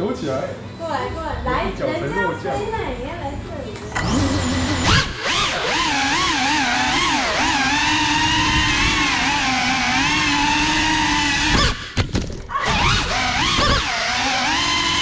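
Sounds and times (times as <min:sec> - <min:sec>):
quadcopter motors whining: 0:03.8 - 0:15.0.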